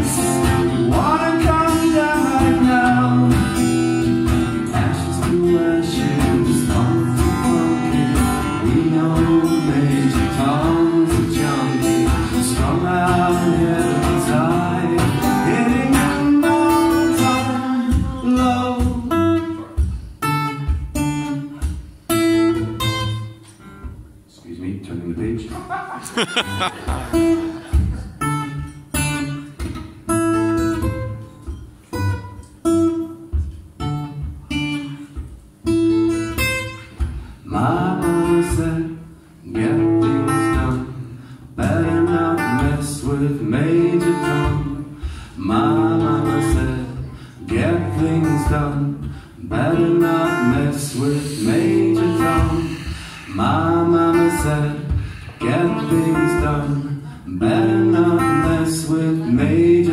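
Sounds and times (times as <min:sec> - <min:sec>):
man singing: 0:00.0 - 0:03.9, 0:04.6 - 0:19.8, 0:37.4 - 0:59.9
acoustic guitar: 0:00.0 - 0:59.9.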